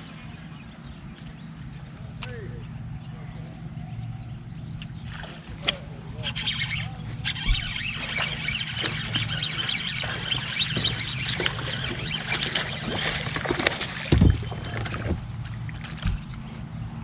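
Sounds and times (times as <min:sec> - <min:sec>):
fish splashing in water: 0:05.0 - 0:16.5.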